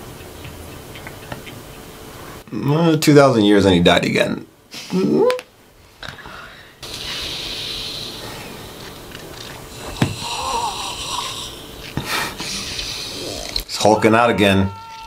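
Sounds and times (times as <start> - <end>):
steady rushing hiss: 6.8 - 13.7
man straining and wheezing: 9.8 - 13.6.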